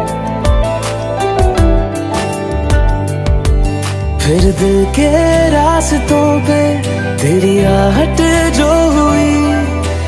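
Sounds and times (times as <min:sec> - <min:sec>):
soft love song instrumental: 0:00.0 - 0:10.0.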